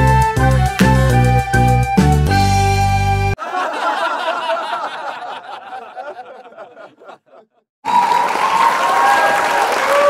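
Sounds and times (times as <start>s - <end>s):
background music: 0.0s - 3.4s
crowd applauding and cheering: 7.8s - 10.0s.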